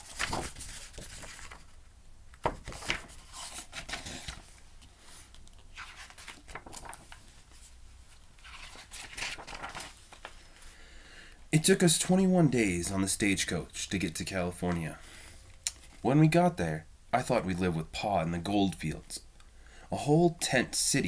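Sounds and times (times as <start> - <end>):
book pages rustling and turning: 0.0 - 10.7.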